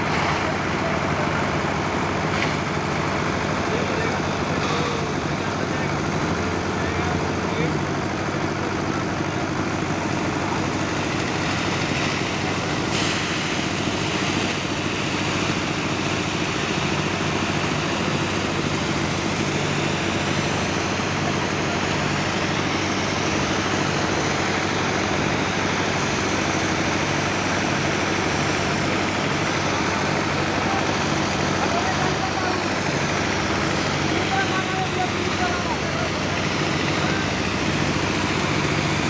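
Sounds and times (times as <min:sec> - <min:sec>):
diesel truck engine running: 0:00.0 - 0:39.0.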